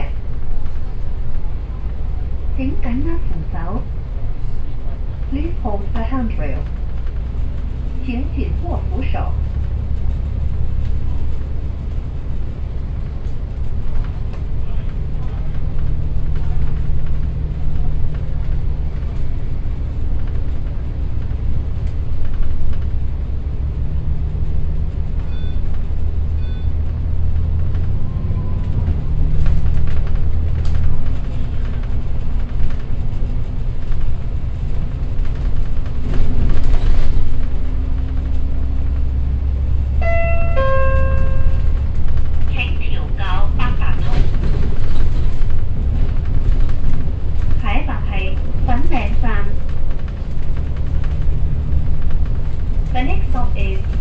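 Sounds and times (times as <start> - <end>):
bus engine running: 0.0 - 54.0
road rumble: 0.0 - 54.0
electronic chime: 40.0 - 41.7.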